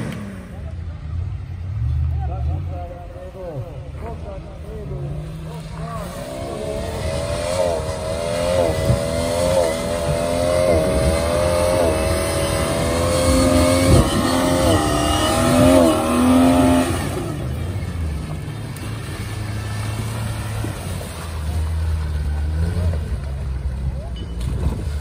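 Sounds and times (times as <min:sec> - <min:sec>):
engine revving under load: 0:00.0 - 0:02.8, 0:04.9 - 0:18.1.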